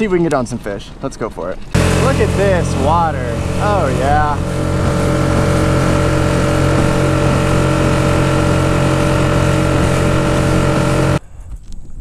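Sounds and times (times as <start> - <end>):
outboard motor running: 1.7 - 11.2
water rushing along hull: 1.8 - 11.2.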